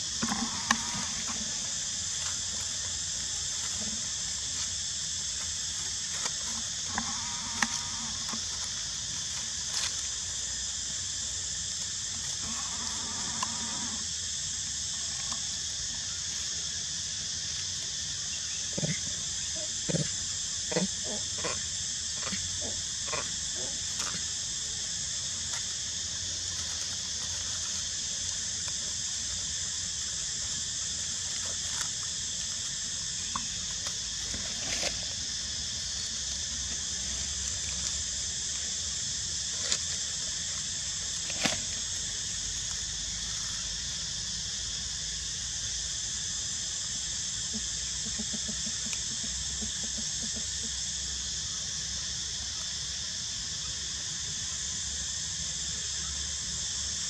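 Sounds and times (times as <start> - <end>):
insect chorus drone: 0.0 - 57.0.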